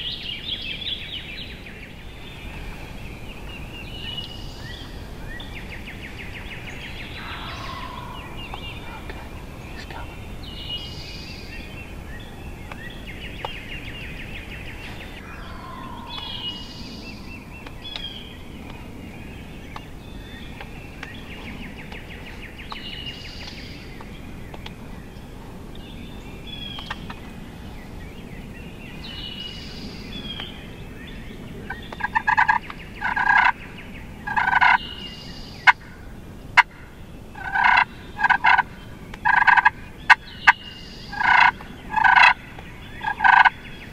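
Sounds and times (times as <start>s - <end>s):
songbirds chirping and trilling: 0.0s - 43.9s
turkey gobbling: 7.2s - 9.6s, 32.0s - 33.6s, 34.3s - 34.9s, 37.4s - 42.4s, 43.0s - 43.5s.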